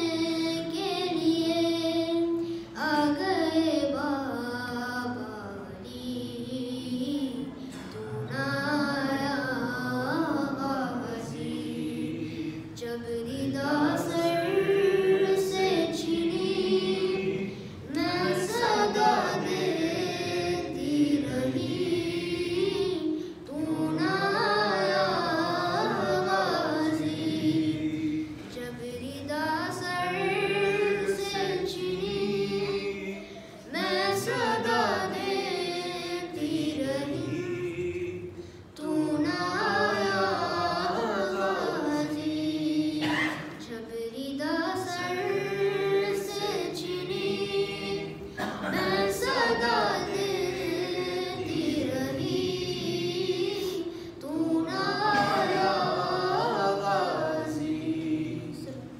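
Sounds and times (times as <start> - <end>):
breaths: 2.4 - 2.8, 23.1 - 23.4, 33.2 - 33.7, 38.3 - 38.8, 53.8 - 54.2
boy chanting: 12.8 - 37.8, 38.8 - 58.9.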